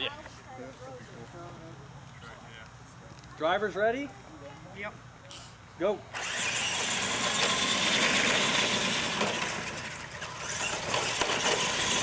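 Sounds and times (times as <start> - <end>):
toy truck motors and tires on dirt: 6.0 - 12.0.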